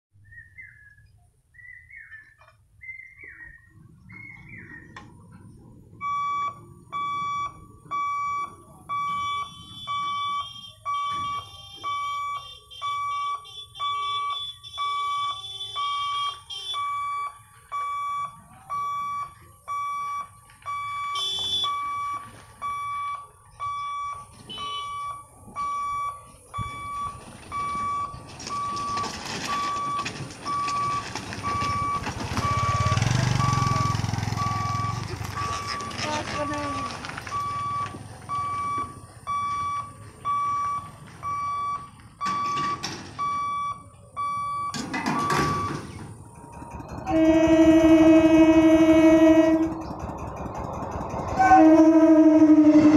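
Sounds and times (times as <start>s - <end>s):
level-crossing warning buzzer beeping: 6.0s - 46.0s.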